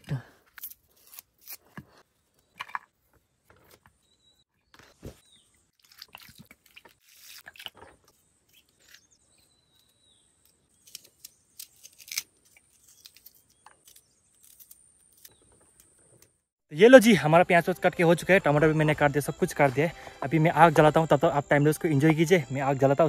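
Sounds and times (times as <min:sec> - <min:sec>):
bird chirping: 0:04.0 - 0:05.6, 0:08.2 - 0:11.6.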